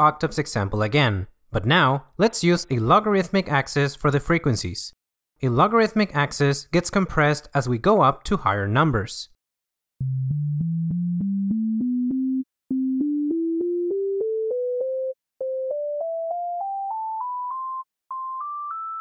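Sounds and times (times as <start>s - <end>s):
sine tones playing a scale: 10.0s - 19.0s.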